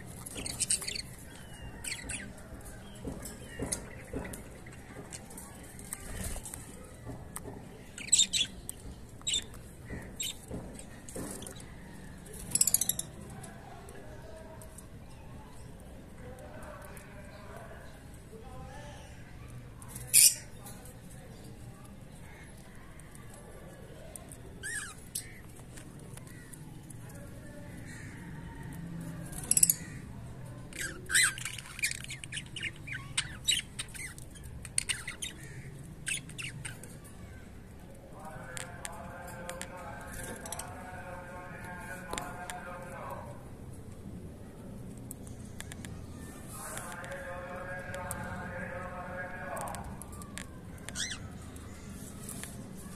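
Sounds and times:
cockatiels squawking and chirping: 0.1 - 5.0, 7.9 - 10.6, 24.6 - 25.5, 30.8 - 37.0, 50.8 - 51.4.

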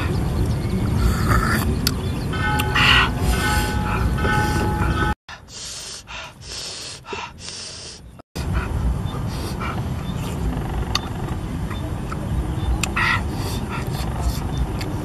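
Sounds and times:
wind rumbling on microphone: 0.0 - 5.2, 8.4 - 15.0
man's hissing breaths and gasps: 5.3 - 9.8.

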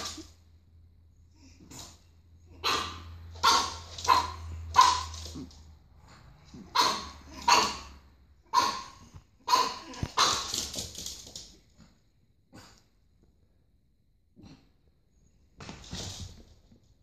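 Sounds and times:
puppy barking: 2.5 - 5.5, 6.5 - 10.7.

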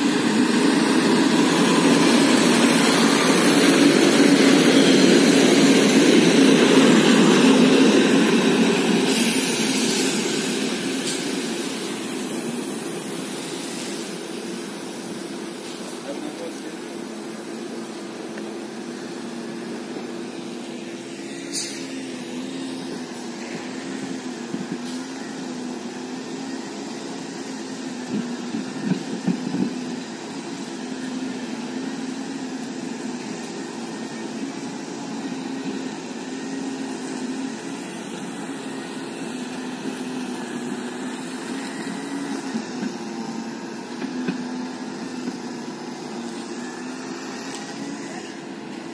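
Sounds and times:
rough burst of noise: 0.0 - 25.2
diesel train engine humming: 0.0 - 48.9.

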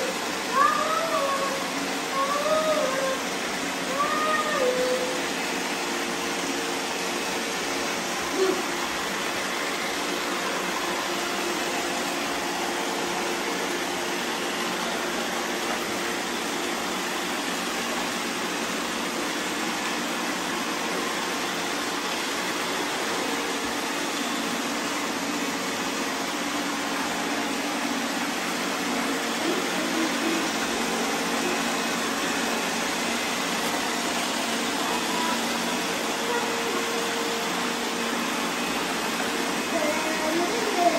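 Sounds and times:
robot vacuums whirring: 0.0 - 40.9.

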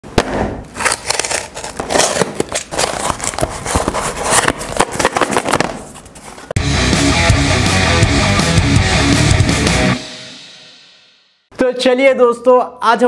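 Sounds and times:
cardboard box being opened: 0.8 - 6.5.

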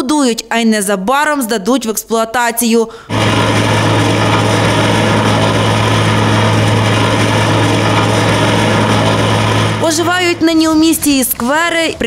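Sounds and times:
small engine running: 3.1 - 11.3.

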